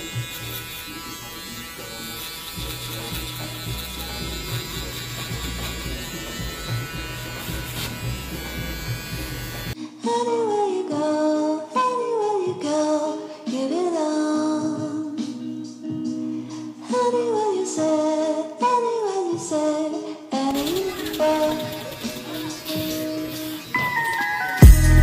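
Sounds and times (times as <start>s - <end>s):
shaver motor buzzing: 0.0s - 9.8s, 20.5s - 25.0s
song with singing voice: 9.8s - 25.0s.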